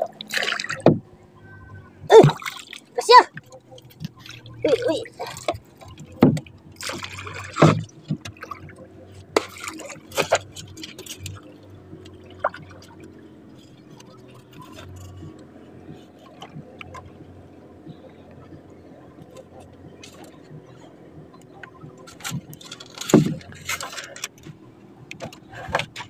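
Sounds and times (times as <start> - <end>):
water lapping against wooden hull: 0.0 - 26.0
small knocks on boat: 0.7 - 1.1, 5.5 - 8.7, 21.7 - 23.6.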